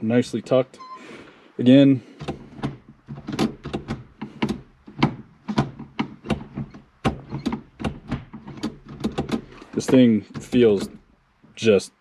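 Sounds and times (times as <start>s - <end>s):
gear lever metal clicks and clunks: 2.2s - 11.1s.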